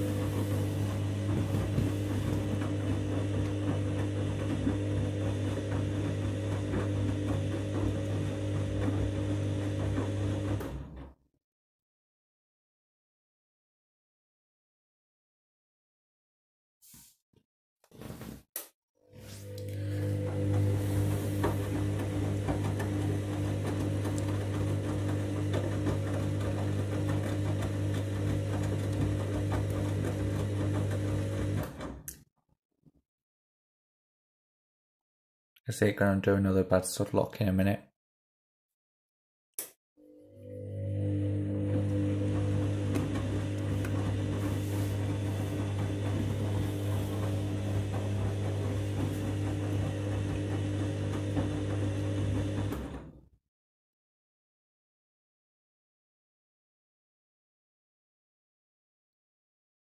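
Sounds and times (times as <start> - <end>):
washing machine motor hum: 0.0 - 11.2, 19.0 - 32.1, 40.0 - 53.3.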